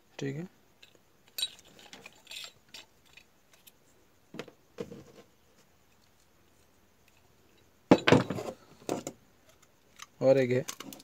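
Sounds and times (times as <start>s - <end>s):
handling of metal parts: 0.8s - 3.8s, 7.1s - 11.0s.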